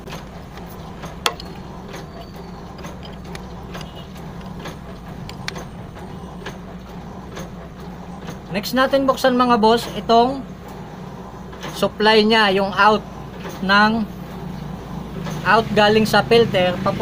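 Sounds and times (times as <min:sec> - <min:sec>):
steady low hum: 0:00.0 - 0:17.0
wrench metal clicks: 0:00.1 - 0:06.6.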